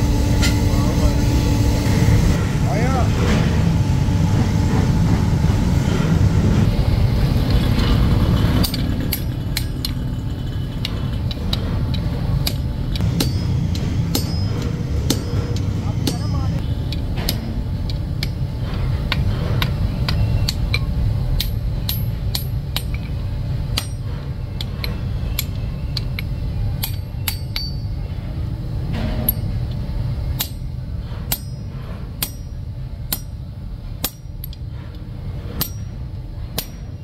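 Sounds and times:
steady low rumble: 0:00.0 - 0:37.0
hammer striking metal on anvil: 0:10.9 - 0:18.4, 0:19.1 - 0:28.0, 0:28.9 - 0:29.6, 0:30.3 - 0:33.4, 0:34.0 - 0:34.6, 0:35.5 - 0:37.0.

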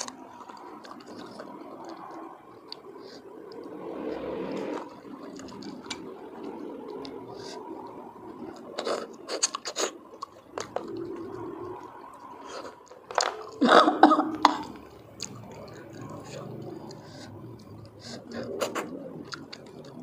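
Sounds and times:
person chewing and sucking: 0:08.4 - 0:13.6, 0:14.6 - 0:20.0.

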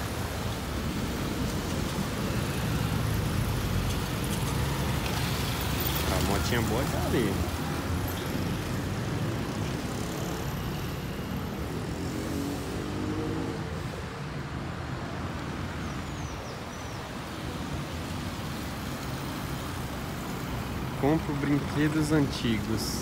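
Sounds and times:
rumble of passing cars: 0:00.0 - 0:23.0.

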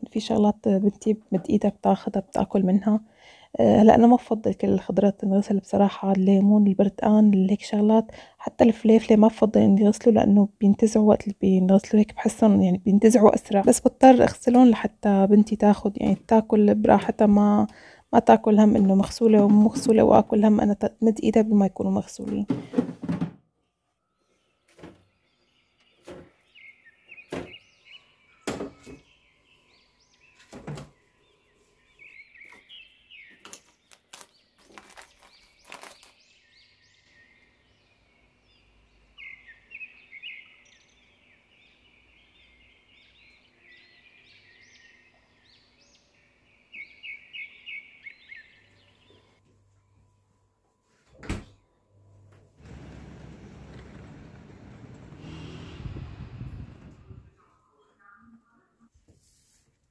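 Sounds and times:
containers knocking and clunking: 0:22.1 - 0:23.4.

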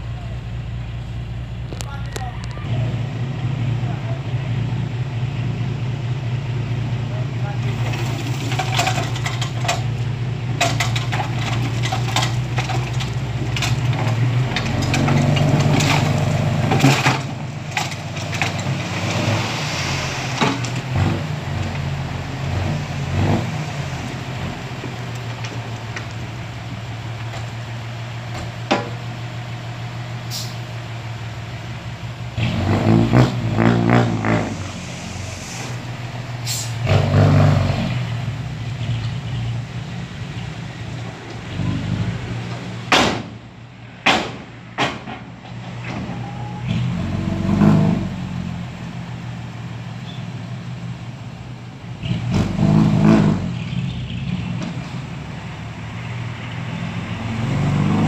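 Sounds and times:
diesel truck engine running: 0:00.0 - 0:58.0
soil and rocks sliding out: 0:07.6 - 0:09.9, 0:10.6 - 0:21.9
falling stones clattering: 0:07.8 - 0:09.9, 0:10.6 - 0:19.3.

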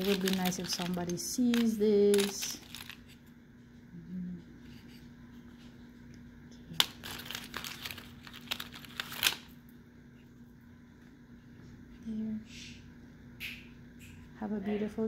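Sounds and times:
plastic bag crinkling: 0:00.0 - 0:03.2, 0:06.8 - 0:09.6.

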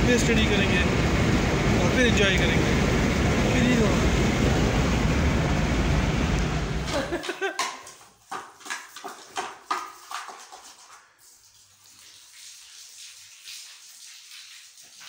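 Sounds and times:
knocks and scrapes at cooking pot: 0:07.6 - 0:10.8.

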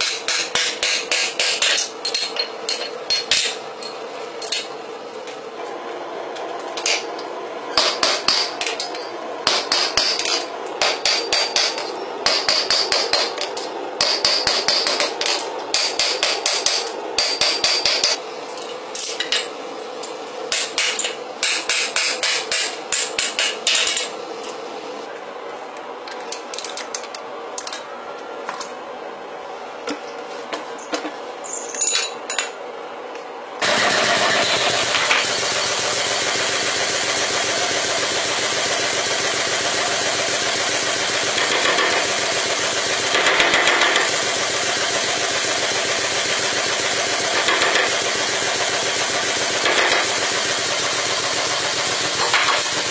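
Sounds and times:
hammer striking anvil: 0:00.0 - 0:03.6, 0:07.8 - 0:13.4, 0:14.0 - 0:18.2, 0:20.5 - 0:24.1
machine droning: 0:32.7 - 0:52.9.

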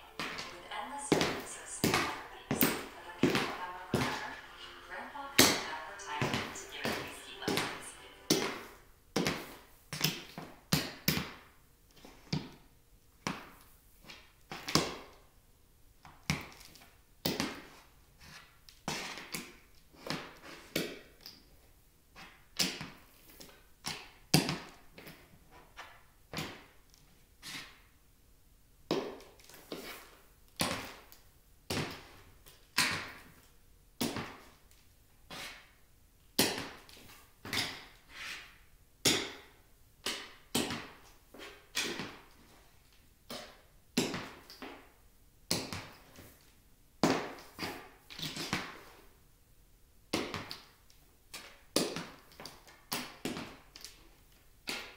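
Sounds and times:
heeled shoes tapping on wood floor: 0:00.1 - 0:04.6, 0:06.2 - 0:08.6.

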